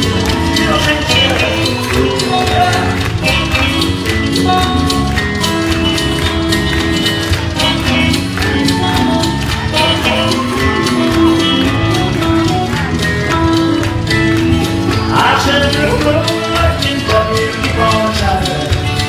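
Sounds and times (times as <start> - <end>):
sung vocals: 0.0 - 4.0, 15.0 - 19.0
live rock band music: 0.0 - 19.0.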